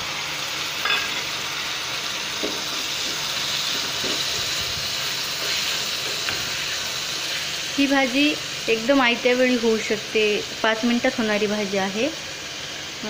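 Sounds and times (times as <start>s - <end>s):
vegetables sizzling in hot oil: 0.0s - 13.0s
spatula scraping pan: 5.3s - 7.4s.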